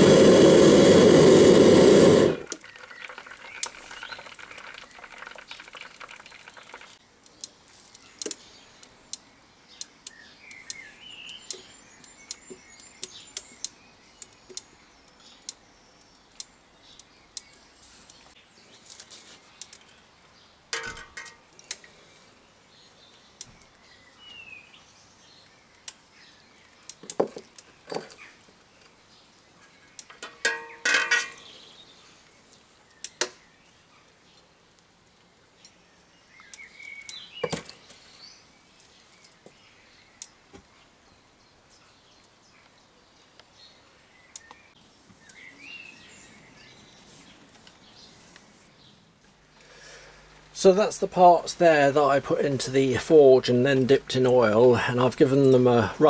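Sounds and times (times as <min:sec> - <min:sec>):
forge burner hissing: 0:00.0 - 0:02.6
bird chirps: 0:02.5 - 0:06.8, 0:07.4 - 0:20.4, 0:35.6 - 0:49.1
tool clanking against steel pot: 0:30.2 - 0:31.4.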